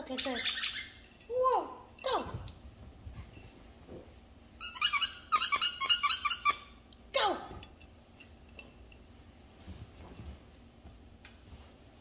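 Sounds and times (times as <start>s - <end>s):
squeaky dog toy squeaks: 0.0s - 1.0s, 4.6s - 6.8s.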